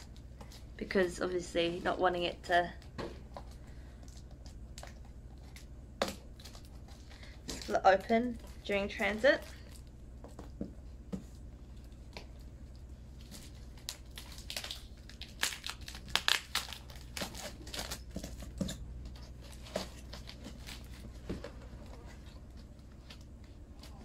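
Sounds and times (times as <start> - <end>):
faint low hum: 0.0 - 24.0
packing tape peeling off cardboard: 13.2 - 18.7.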